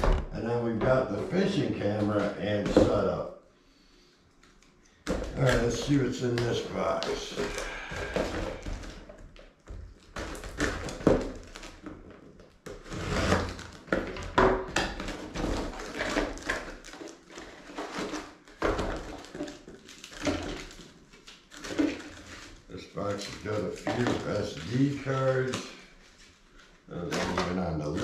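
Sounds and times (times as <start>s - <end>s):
cardboard and packaging rustling: 4.4s - 28.0s.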